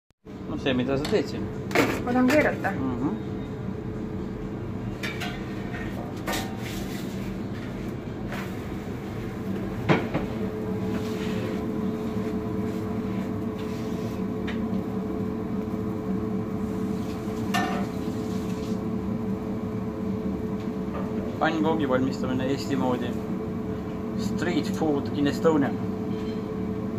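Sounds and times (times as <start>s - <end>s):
steady hum: 0.3s - 26.9s.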